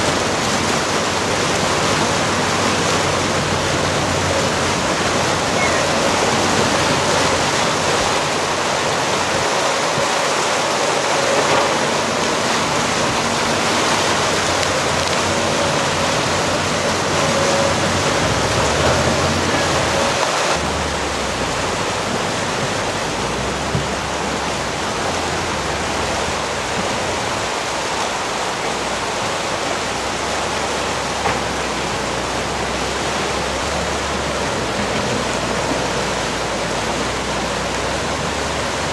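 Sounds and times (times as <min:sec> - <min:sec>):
faint excavator engine: 0:00.0 - 0:38.9
river rushing: 0:00.0 - 0:38.9.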